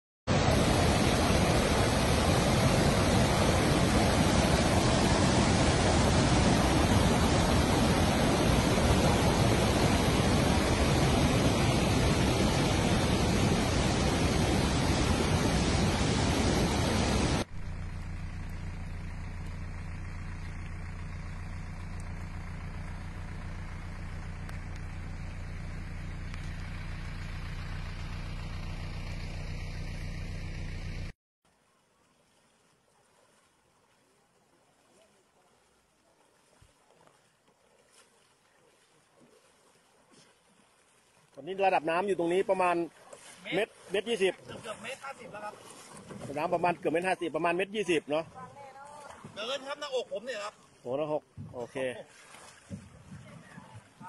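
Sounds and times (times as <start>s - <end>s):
water rushing over rocks: 0.3s - 17.6s, 41.2s - 50.5s
low steady hum: 0.3s - 31.1s.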